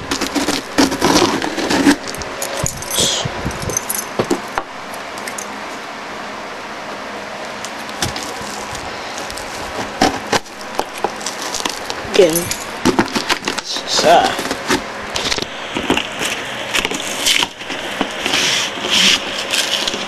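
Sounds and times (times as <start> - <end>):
key scraping through tape: 0.0 - 4.4.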